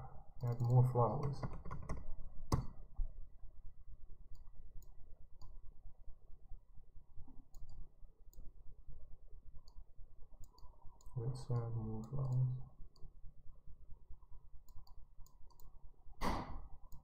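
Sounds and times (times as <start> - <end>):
computer mouse clicking: 0.4 - 2.8, 4.3 - 5.6, 7.3 - 8.6, 9.6 - 13.2, 14.2 - 17.0.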